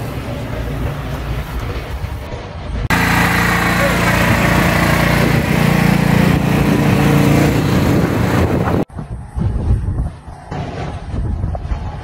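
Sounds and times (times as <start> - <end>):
snowblower engine running: 2.9 - 8.9.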